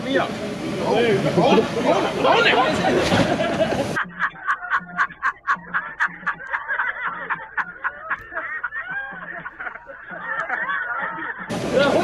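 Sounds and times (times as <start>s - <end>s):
man laughing wildly: 3.2s - 12.0s.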